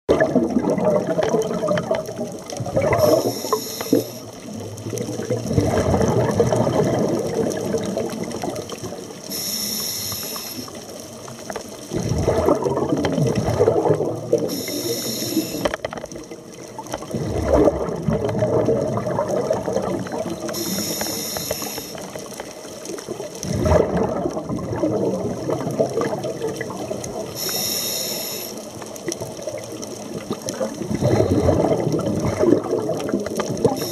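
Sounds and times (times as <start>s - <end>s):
bubbling exhaust: 0.1s - 8.7s, 11.9s - 15.6s, 17.1s - 22.0s, 23.4s - 28.6s, 30.5s - 33.9s
regulator hiss on inhale: 3.0s - 4.3s, 9.2s - 10.8s, 14.5s - 15.7s, 20.5s - 22.2s, 27.3s - 28.7s.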